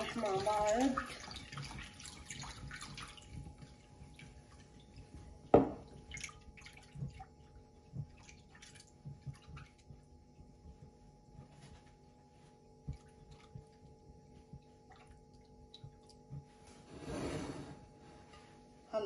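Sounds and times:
water pouring into a bowl: 0:00.0 - 0:10.0.

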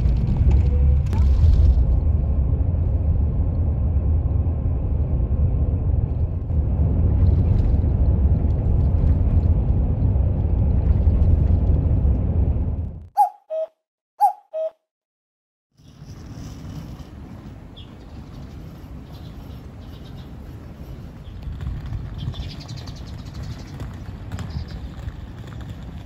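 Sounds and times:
bus engine and road rumble: 0:00.0 - 0:13.1, 0:15.8 - 0:26.0
two-note hoot: 0:13.2 - 0:14.8.

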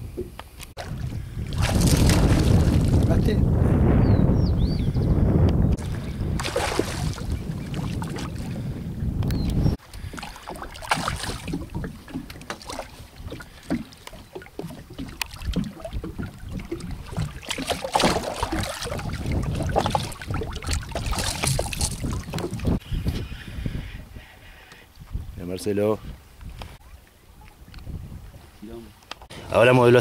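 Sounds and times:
wind rumble on microphone: 0:00.0 - 0:30.0
fish splashing in water: 0:00.8 - 0:03.2, 0:05.8 - 0:08.5, 0:10.0 - 0:22.8.

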